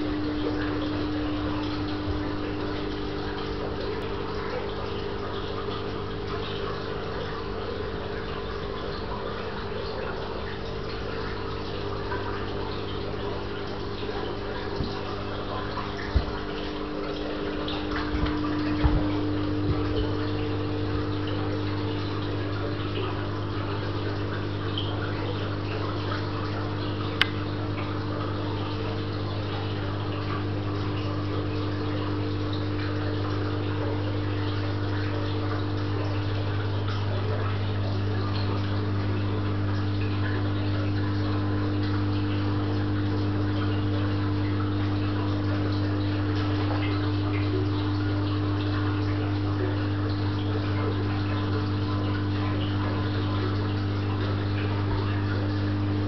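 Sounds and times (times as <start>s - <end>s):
filter pumps humming: 0.0s - 56.0s
water rushing and trickling: 0.0s - 56.0s.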